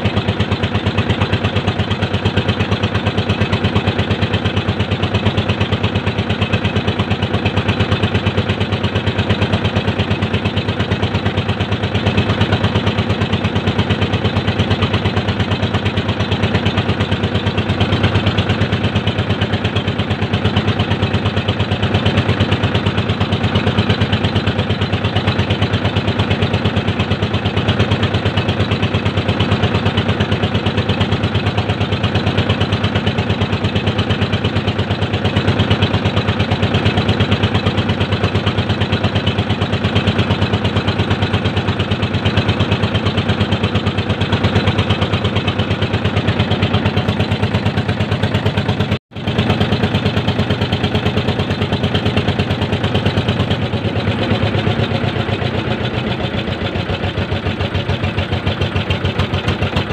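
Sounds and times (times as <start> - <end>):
boat engine pulsing: 0.0 - 59.9.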